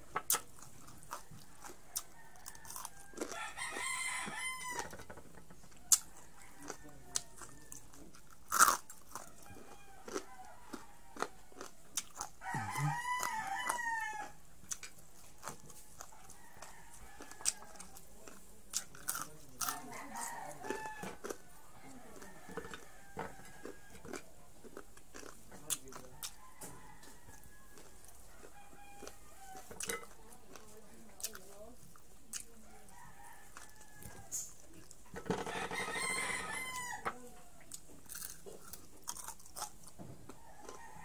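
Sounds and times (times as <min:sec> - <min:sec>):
crunchy chewing: 0:00.0 - 0:41.0
rooster crowing: 0:01.1 - 0:05.2, 0:05.8 - 0:07.9, 0:09.1 - 0:11.8, 0:12.4 - 0:14.4, 0:16.0 - 0:18.0, 0:19.7 - 0:24.2, 0:26.1 - 0:29.9, 0:32.7 - 0:34.5, 0:35.2 - 0:37.8, 0:40.3 - 0:41.0.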